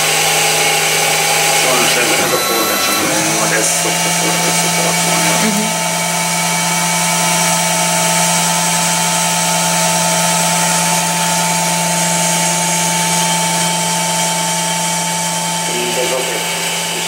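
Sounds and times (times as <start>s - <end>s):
lathe running: 0.0s - 17.0s.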